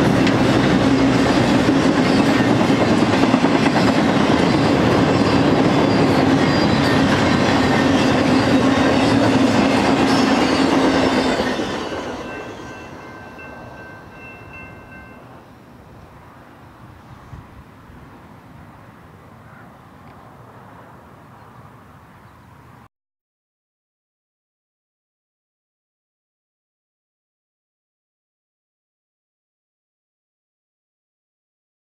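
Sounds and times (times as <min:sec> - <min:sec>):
train wheels rumbling on rail: 0:00.0 - 0:18.6.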